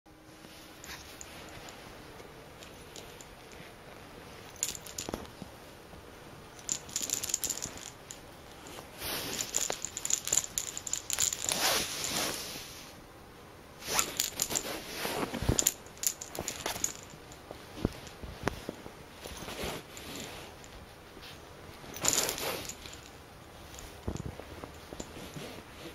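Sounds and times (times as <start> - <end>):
cat scuffling with toy on carpet: 6.7 - 12.9, 13.8 - 25.9.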